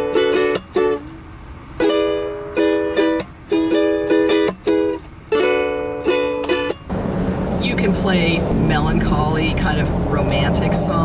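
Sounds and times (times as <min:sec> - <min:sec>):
ukulele strummed with muted chops: 0:00.0 - 0:07.4.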